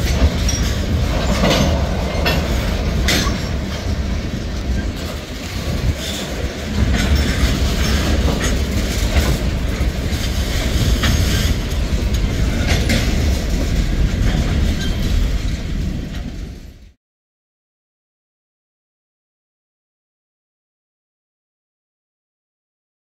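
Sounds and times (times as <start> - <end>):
wheels clacking over rail joints: 0.0 - 16.8
train wheels rumbling on rail: 0.0 - 17.0.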